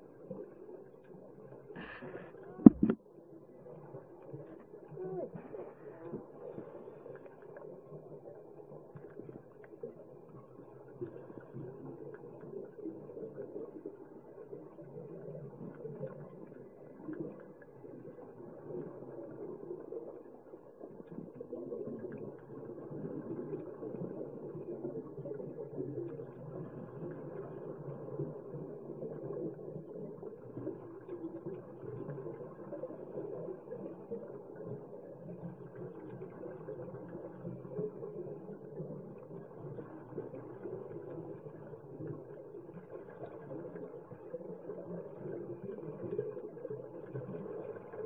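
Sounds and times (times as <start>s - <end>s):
muffled underwater rumble: 0.0s - 48.0s.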